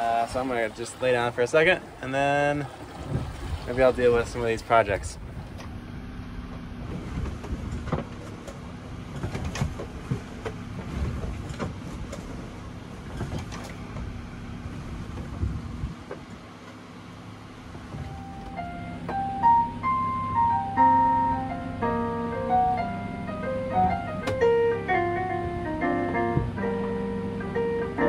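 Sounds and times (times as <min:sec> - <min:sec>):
hull creaks and knocks: 0:02.7 - 0:03.7, 0:06.4 - 0:16.8, 0:17.7 - 0:19.2
piano notes: 0:18.0 - 0:28.0.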